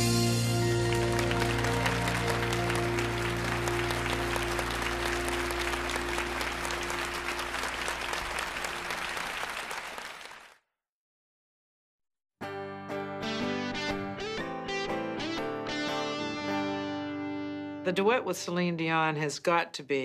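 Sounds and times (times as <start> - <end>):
studio audience applauding: 0.0 - 10.6.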